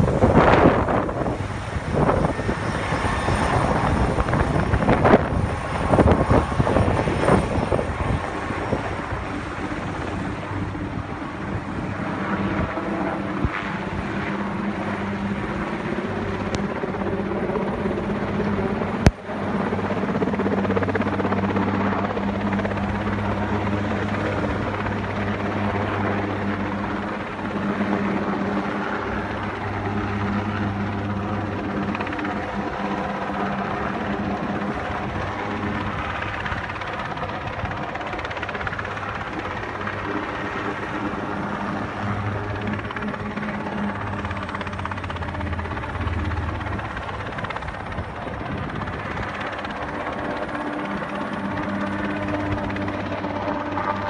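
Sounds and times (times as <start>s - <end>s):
helicopter rotor drone overhead: 0.0s - 54.0s.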